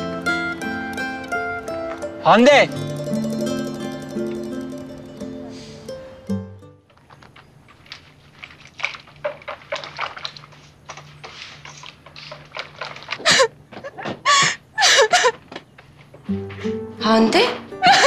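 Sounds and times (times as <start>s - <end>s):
woman crying loudly: 17.8s - 18.0s.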